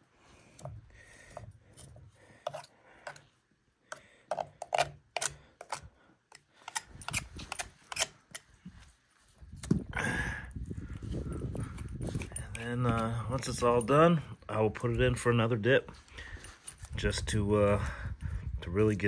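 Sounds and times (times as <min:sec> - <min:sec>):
knife scraping on bone: 0:01.7 - 0:03.2, 0:04.3 - 0:08.5.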